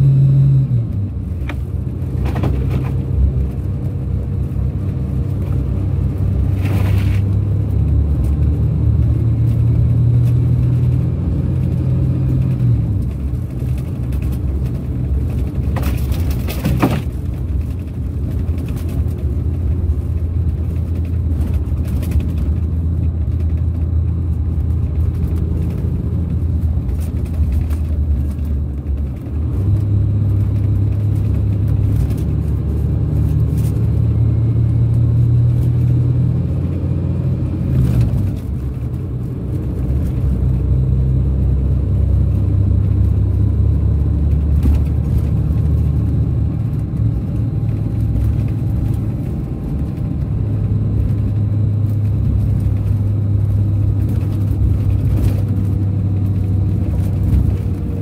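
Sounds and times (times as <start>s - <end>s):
diesel coach engine drone: 0.0s - 58.0s.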